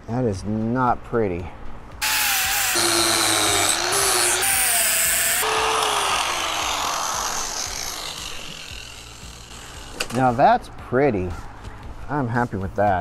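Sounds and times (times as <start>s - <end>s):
angle grinder grinding metal: 2.0s - 10.3s.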